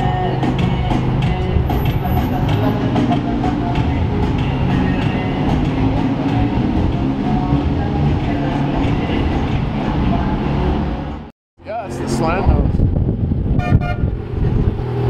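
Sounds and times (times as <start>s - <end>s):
city traffic rumble: 0.0s - 15.0s.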